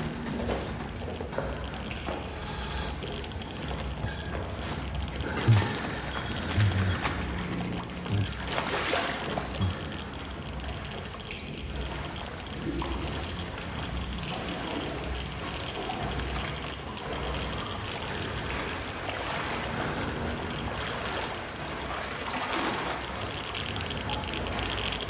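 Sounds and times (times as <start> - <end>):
steady low rumble: 0.0 - 8.6
water splashing from wading: 0.0 - 25.0.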